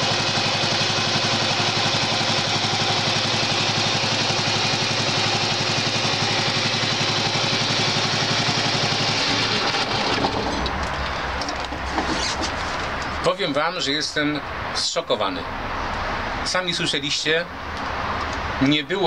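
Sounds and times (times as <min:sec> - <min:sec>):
lawn tractor engine running: 0:00.0 - 0:13.3.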